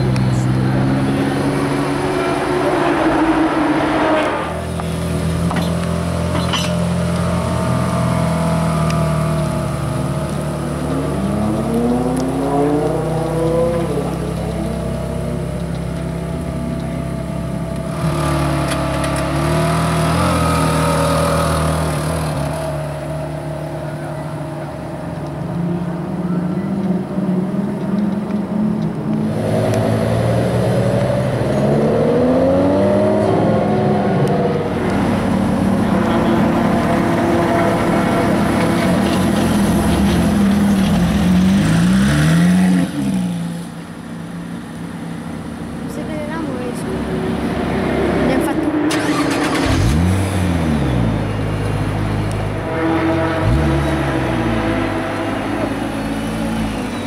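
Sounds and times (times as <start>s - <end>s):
car engine pulling away: 0.1s - 46.0s, 46.6s - 57.0s
engine throttle blips: 48.2s - 57.0s.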